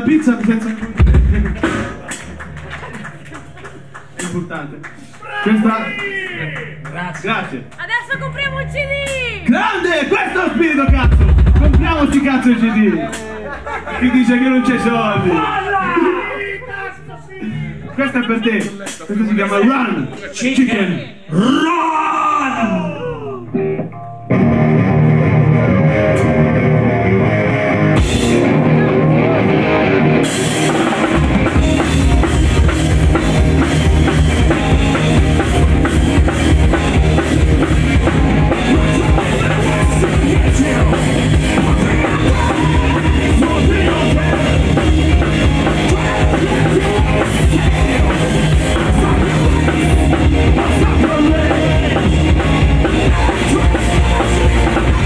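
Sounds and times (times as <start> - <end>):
live rock band playing: 0.0 - 4.6, 6.4 - 16.3, 23.5 - 55.0
bass guitar: 0.0 - 5.2, 6.4 - 16.3, 22.6 - 55.0
drums and cymbals: 0.9 - 2.4, 10.8 - 13.4, 18.5 - 19.1, 28.0 - 28.8, 30.0 - 55.0
electric guitar: 23.0 - 55.0.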